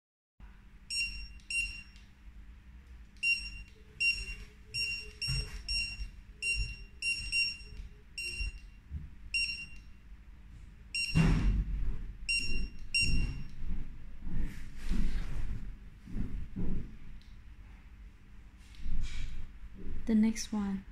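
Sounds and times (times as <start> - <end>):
barcode scanner beeps: 0.9 - 2.0, 3.2 - 8.8, 9.4 - 9.8, 11.0 - 11.4, 12.3 - 13.5.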